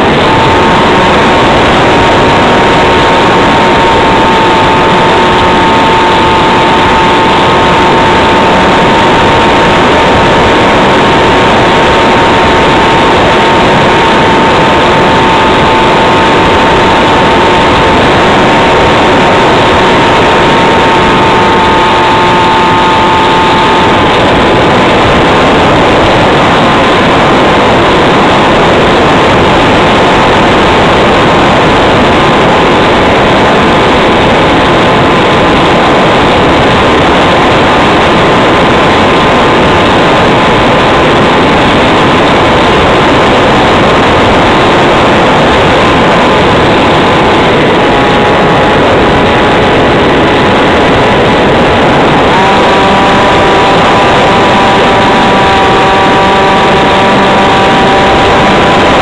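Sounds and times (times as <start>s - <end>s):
electric motor whine: 0.0s - 59.0s
wind and propeller rush: 0.0s - 59.0s.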